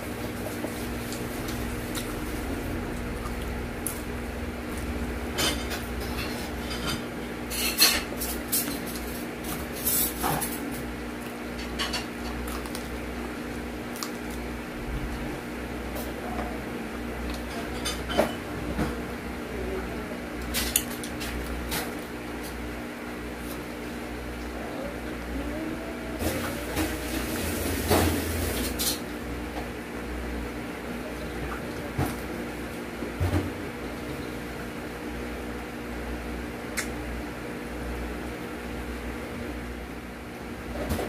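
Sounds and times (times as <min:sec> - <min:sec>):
steady low hum: 0:00.0 - 0:41.0
crunchy chewing: 0:12.2 - 0:15.2.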